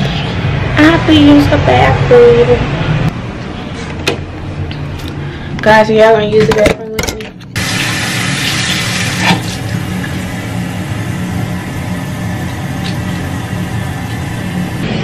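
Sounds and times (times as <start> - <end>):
electric fan humming and whirring: 0.0 - 15.0.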